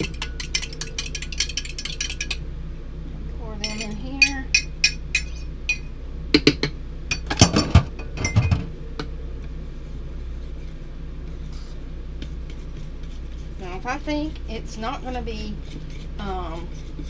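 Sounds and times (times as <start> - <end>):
utensil clinking in ceramic bowl: 0.0 - 2.4, 3.6 - 5.9
low hum: 0.0 - 17.0.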